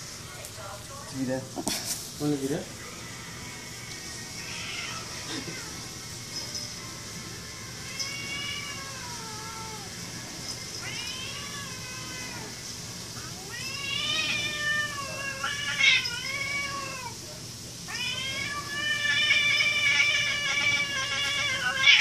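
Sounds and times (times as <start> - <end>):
cat yowling: 4.4 - 5.9, 7.7 - 10.0, 10.8 - 12.6, 13.2 - 17.2, 17.9 - 22.0.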